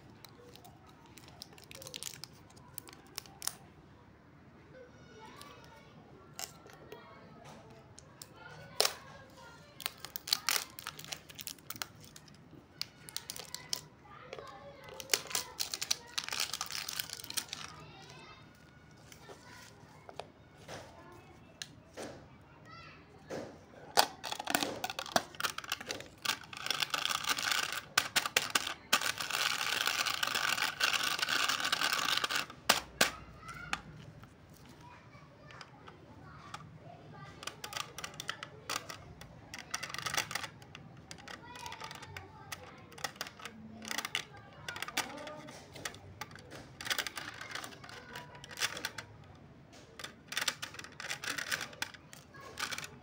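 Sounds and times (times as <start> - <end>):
plastic wrap crackling and snapping: 0.0 - 3.6, 8.7 - 9.1, 9.7 - 13.9, 14.8 - 18.1, 24.0 - 33.9.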